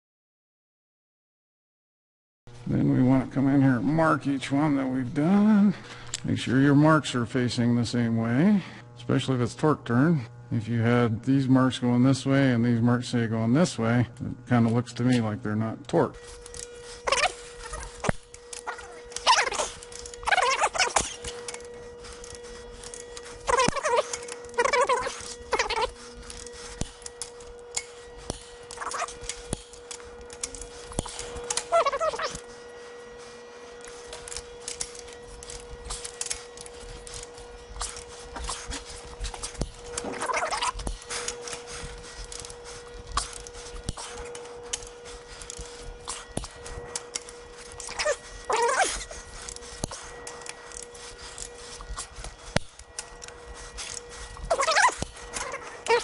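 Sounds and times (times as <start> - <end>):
steady hum: 2.5 - 56.0
short squealing whines: 16.2 - 56.0
torque wrench ratcheting: 33.8 - 46.5.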